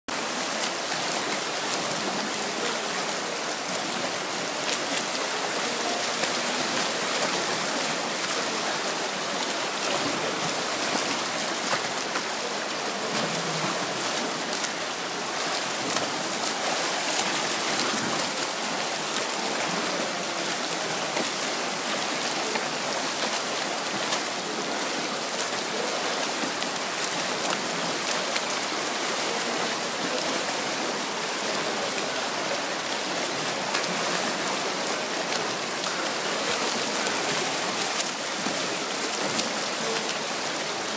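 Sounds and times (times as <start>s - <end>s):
swimmers splashing in pool: 0.1s - 40.9s.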